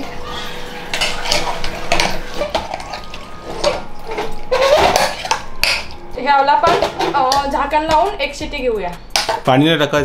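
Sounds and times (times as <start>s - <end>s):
metal spoon scraping a metal pot: 0.3s - 6.0s.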